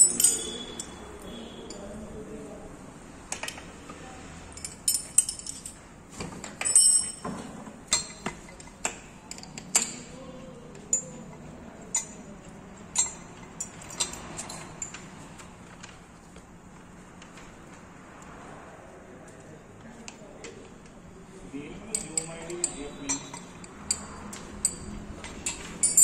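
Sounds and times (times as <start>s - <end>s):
metal spanner clinking: 0.0s - 1.8s, 4.5s - 5.8s, 6.4s - 15.1s, 21.8s - 26.0s.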